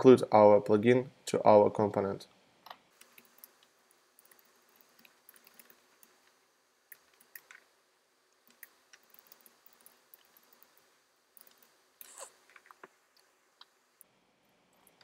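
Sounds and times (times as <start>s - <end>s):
typing on computer keyboard: 4.2s - 5.8s, 8.5s - 10.7s.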